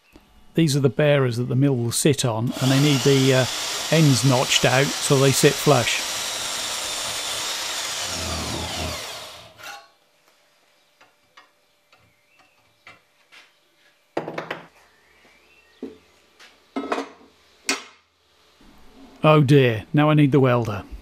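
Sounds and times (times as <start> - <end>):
bandsaw cutting steel: 2.5 - 9.9.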